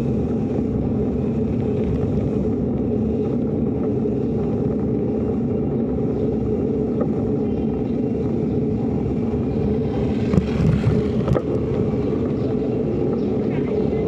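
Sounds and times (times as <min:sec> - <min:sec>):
wind and road rumble: 0:00.0 - 0:14.0
bicycle knocks and rattles: 0:10.1 - 0:13.3.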